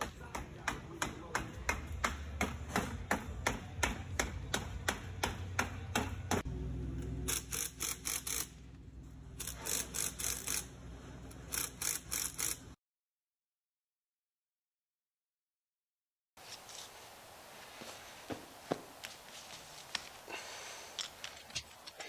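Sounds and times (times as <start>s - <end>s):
low hum: 6.4s - 11.5s.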